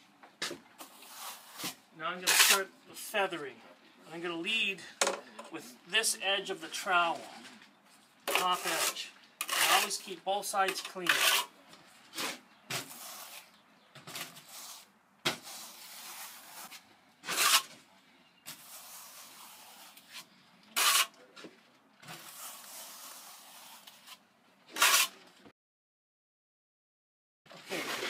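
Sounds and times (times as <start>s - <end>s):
trowel swishing on stucco: 0.8s - 2.6s, 8.3s - 10.1s, 12.1s - 17.8s, 18.5s - 21.1s, 22.2s - 25.2s
trowel scraping: 0.8s - 2.7s, 8.2s - 17.8s, 18.4s - 21.2s, 22.0s - 25.3s, 27.6s - 28.0s.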